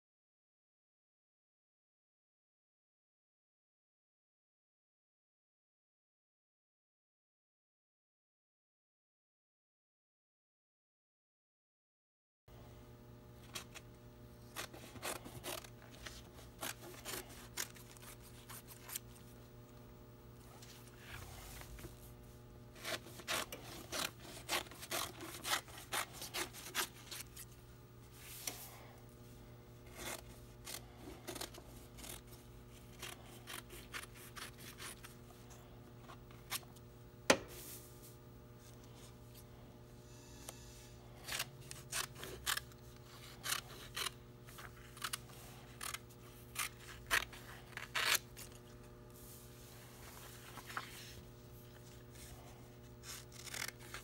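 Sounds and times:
faint steady hum: 12.5 - 54.0
scissors snipping fabric: 14.5 - 19.1, 22.8 - 27.3, 29.9 - 35.1, 41.2 - 48.6, 53.0 - 54.0.

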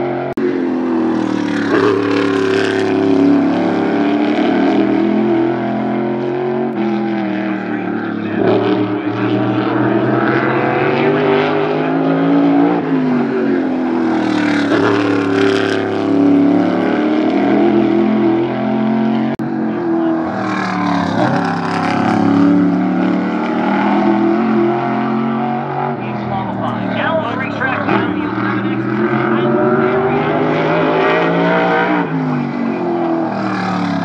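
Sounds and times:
race car engines passing: 0.0 - 34.0.

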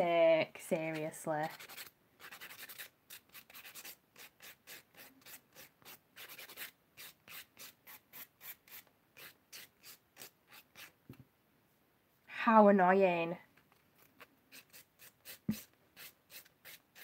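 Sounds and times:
nail file rasping on nail: 0.8 - 11.0, 14.5 - 17.0.

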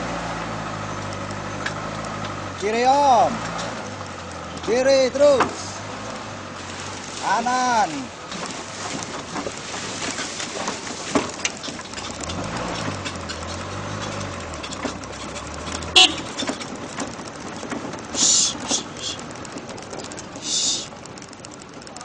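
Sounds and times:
off-road vehicle engine: 0.0 - 22.0
rattles and knocks: 8.2 - 20.4.

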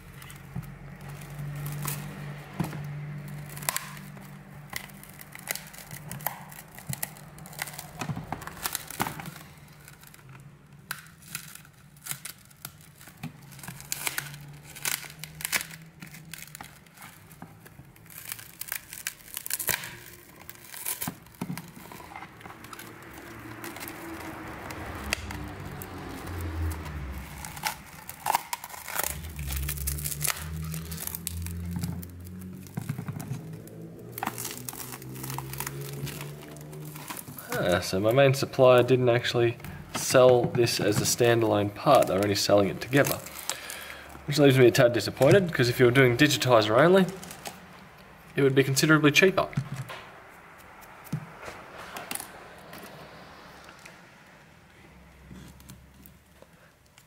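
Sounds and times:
glass crackling and snapping: 0.0 - 37.6, 39.7 - 44.4, 47.0 - 48.1.

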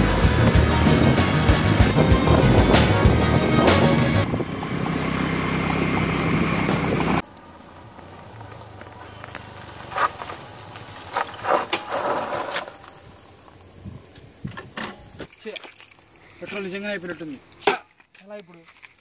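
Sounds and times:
loud music: 0.0 - 4.4
motorcycle engine running unevenly: 0.0 - 9.4
vehicle noise: 0.0 - 12.0.

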